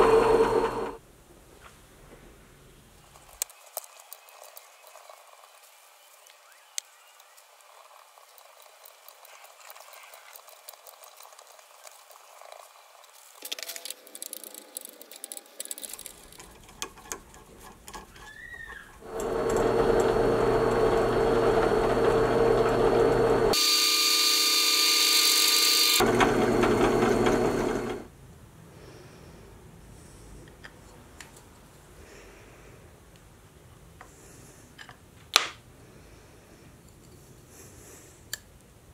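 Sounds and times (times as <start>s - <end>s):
power tool running: 0.0s - 1.0s, 19.0s - 28.1s.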